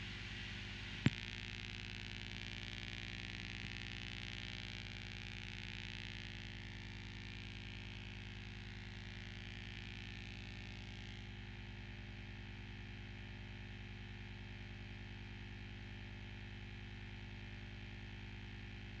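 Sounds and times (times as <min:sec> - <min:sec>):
low electronic buzzing drone: 0:00.0 - 0:11.6.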